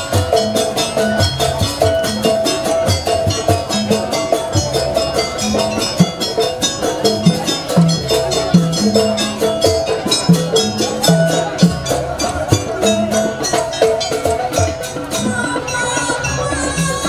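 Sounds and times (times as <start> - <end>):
gamelan music with drums and gongs: 0.0 - 17.0.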